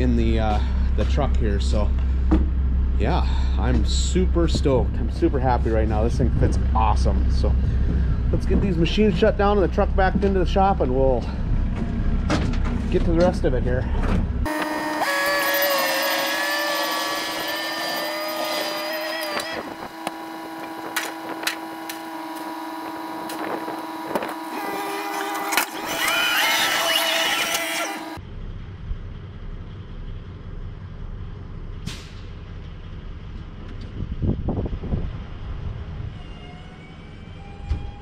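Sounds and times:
diesel heavy equipment running: 0.0s - 38.0s
falling whistle: 14.5s - 19.6s.

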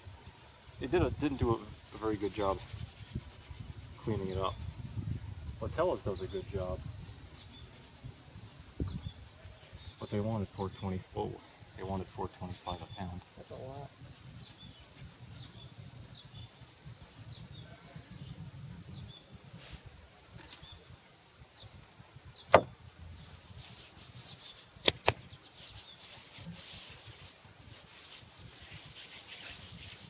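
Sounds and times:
soft high rustle: 0.0s - 21.0s, 22.8s - 30.0s
loud sharp knock: 22.5s - 22.7s.

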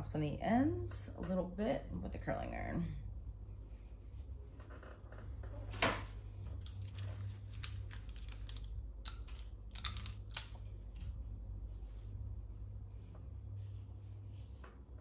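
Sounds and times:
steady low hum: 0.0s - 15.0s
hair clips clicking: 6.0s - 11.1s.

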